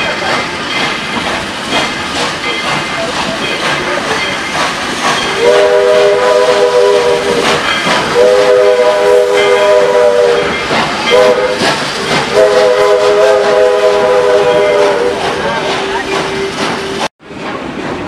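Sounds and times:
moving train hiss: 0:00.0 - 0:18.0
steam locomotive chime whistle: 0:05.1 - 0:17.1.

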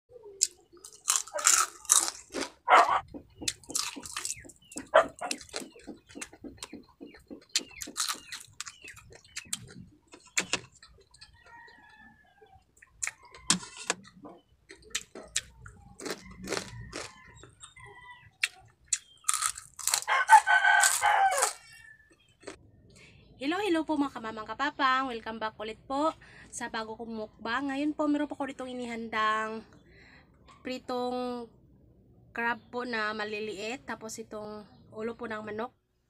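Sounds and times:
crunching fried crab shells: 0:00.4 - 0:02.7, 0:03.4 - 0:06.7, 0:07.4 - 0:11.8, 0:14.6 - 0:17.7, 0:18.4 - 0:22.6.

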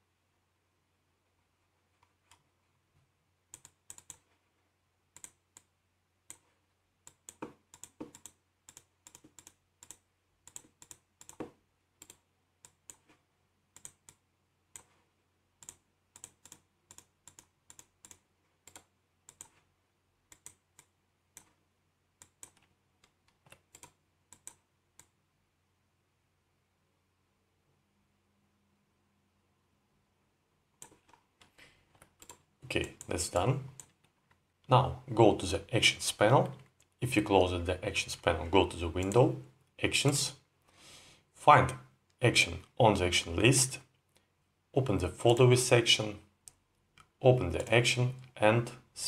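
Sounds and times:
computer mouse and keyboard clicking: 0:03.5 - 0:04.4, 0:05.1 - 0:05.7, 0:06.3 - 0:13.2, 0:13.8 - 0:15.0, 0:15.6 - 0:19.7, 0:20.3 - 0:21.6, 0:22.2 - 0:25.2, 0:30.8 - 0:33.1.

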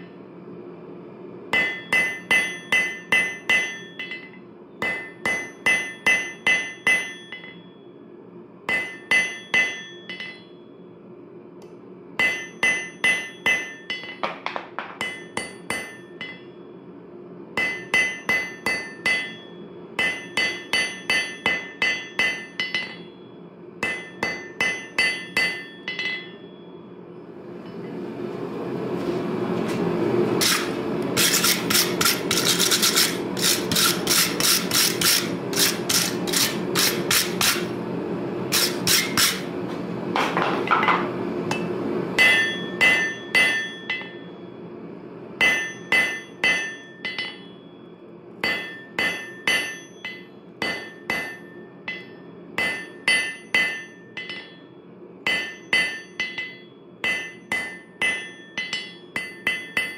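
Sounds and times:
hammer blows on anvil: 0:01.5 - 0:07.8, 0:08.7 - 0:10.6, 0:12.2 - 0:16.5, 0:17.6 - 0:26.8, 0:40.2 - 0:44.4, 0:45.4 - 0:59.9.

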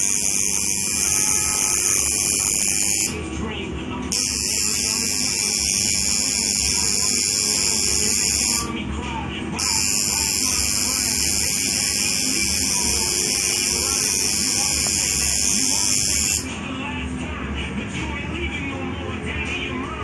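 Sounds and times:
tattoo machine buzzing: 0:00.0 - 0:03.2, 0:04.1 - 0:08.7, 0:09.6 - 0:16.5
faint music: 0:00.0 - 0:20.0
faint voices: 0:00.0 - 0:20.0.

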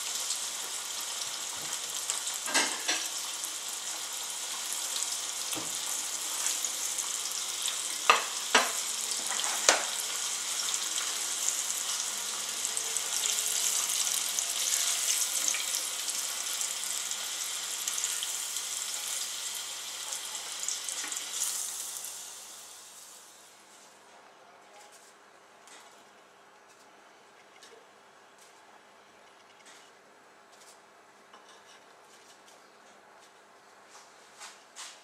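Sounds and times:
fish deep-frying in oil: 0:00.0 - 0:23.6.

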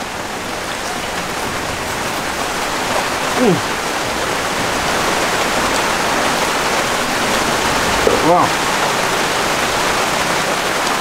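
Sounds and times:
rain-like hiss: 0:00.0 - 0:11.0
man humming mmm while eating: 0:03.4 - 0:03.7.

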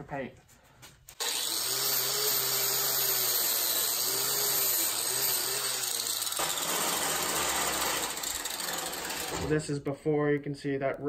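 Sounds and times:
angle grinder wire brush on steel: 0:01.2 - 0:09.7.

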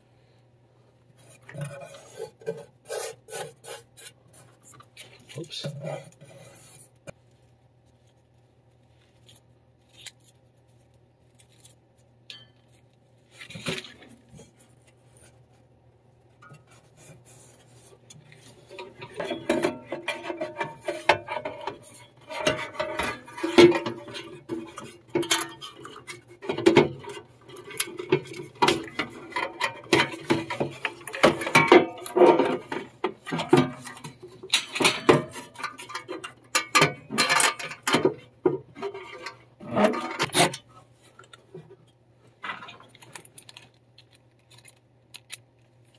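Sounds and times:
sheet metal clattering and scraping: 0:18.4 - 0:40.7.

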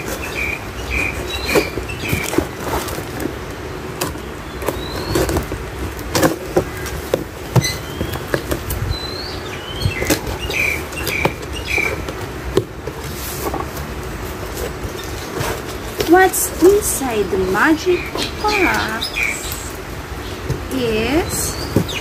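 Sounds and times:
cardboard box scraping and rustling: 0:00.0 - 0:09.0, 0:09.6 - 0:16.8
bird chirps: 0:00.1 - 0:02.4, 0:04.4 - 0:05.4, 0:07.6 - 0:12.0, 0:17.1 - 0:22.0.

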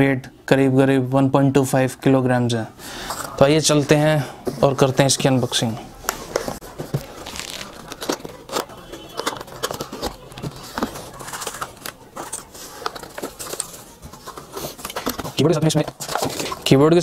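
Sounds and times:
box knocks and scrapes: 0:06.2 - 0:16.7
cardboard box being handled: 0:06.2 - 0:16.7
foam wrapping crinkling: 0:06.4 - 0:16.8.

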